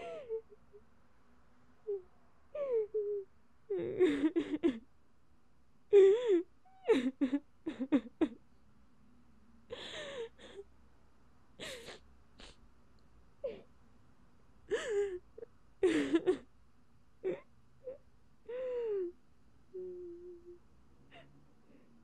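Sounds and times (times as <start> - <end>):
woman making breathy wordless sounds: 19.8 - 20.6.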